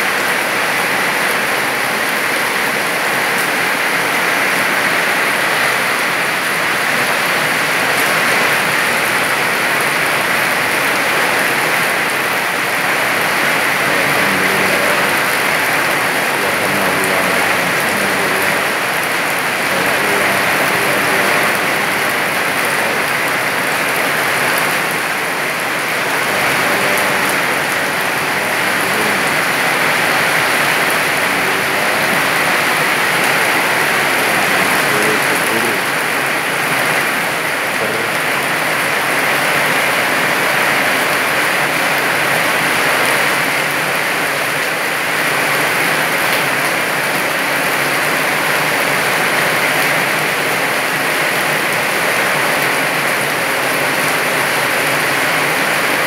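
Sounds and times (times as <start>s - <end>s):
heavy rain downpour: 0.0s - 56.0s.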